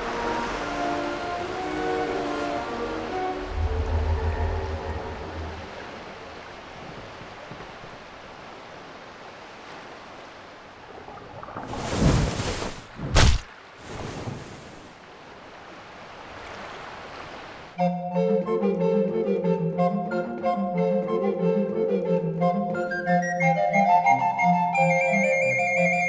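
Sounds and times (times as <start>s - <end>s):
surf washing: 0.0s - 17.8s
loud rushing splash: 10.8s - 15.0s.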